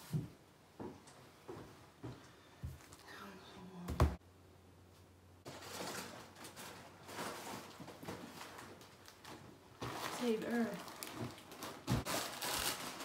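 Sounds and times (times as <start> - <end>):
groceries rustling and knocking: 5.4 - 13.0.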